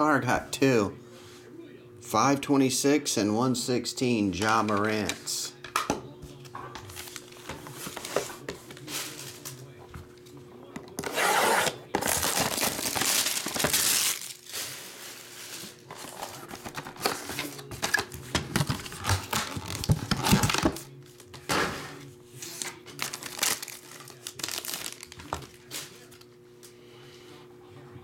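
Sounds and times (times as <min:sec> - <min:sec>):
plastic wrapping tearing: 0:11.0 - 0:20.9, 0:22.4 - 0:26.2
plastic bag rustling: 0:12.0 - 0:17.9, 0:22.5 - 0:26.2.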